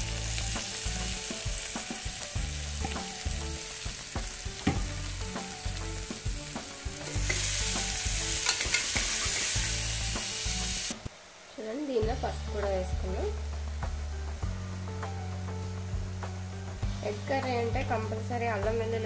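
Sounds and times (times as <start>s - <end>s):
vegetables sizzling in hot oil: 0.0s - 19.0s
metal spoon scraping a pot: 8.4s - 9.5s.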